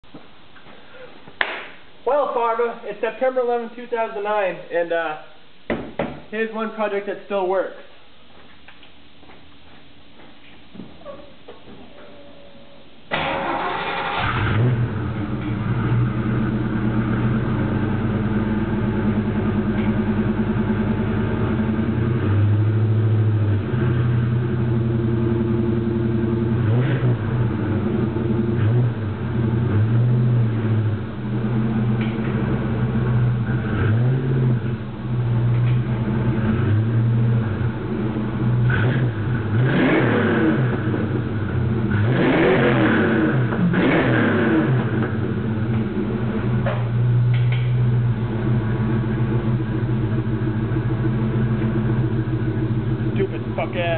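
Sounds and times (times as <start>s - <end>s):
car engine idling: 13.1s - 39.7s, 40.4s - 43.8s, 44.4s - 53.9s
car engine revving: 13.1s - 53.9s.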